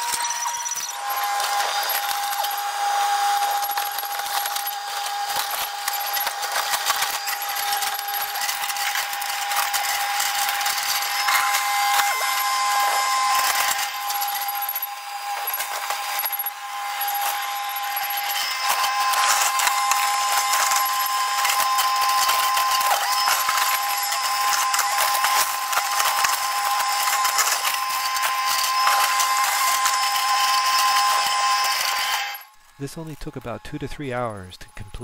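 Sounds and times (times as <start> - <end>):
excavator whine: 0.0 - 35.0
timber cracking and splintering: 1.1 - 14.7, 18.3 - 32.2.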